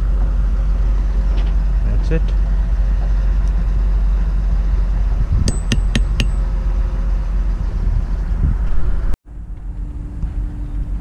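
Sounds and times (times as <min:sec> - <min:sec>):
hammer tapping metal bolts: 0:05.5 - 0:06.4.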